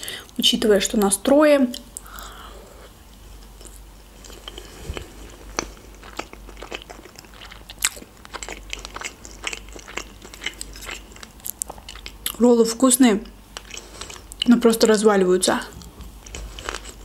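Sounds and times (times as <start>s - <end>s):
person chewing food: 1.8s - 12.4s, 13.2s - 14.5s, 15.8s - 17.0s.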